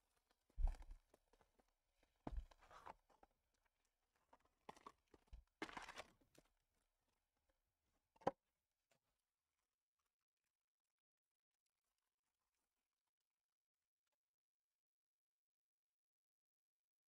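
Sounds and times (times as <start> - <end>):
packaging crinkling and rustling: 5.6 - 6.1.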